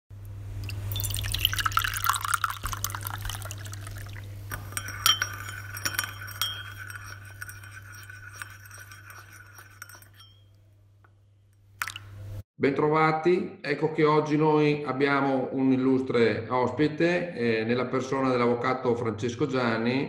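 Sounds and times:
tea pouring into cup: 0:00.6 - 0:10.3, 0:11.8 - 0:12.2
spoon clinking on china: 0:04.5 - 0:10.6.

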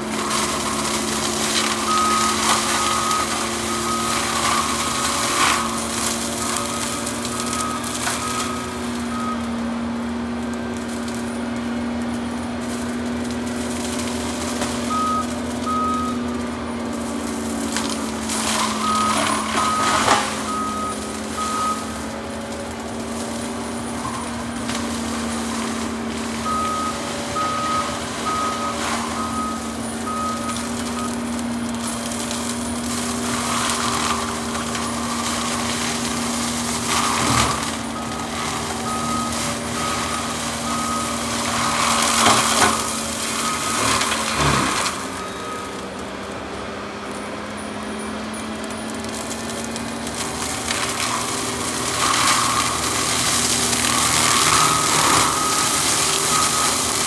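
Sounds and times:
brush cracking and crunching: 0:00.0 - 0:57.0
skid steer engine running: 0:00.0 - 0:57.0
backup alarm beeping: 0:14.9 - 0:16.2, 0:18.8 - 0:22.0, 0:26.4 - 0:31.2, 0:37.3 - 0:41.3, 0:53.9 - 0:57.0.

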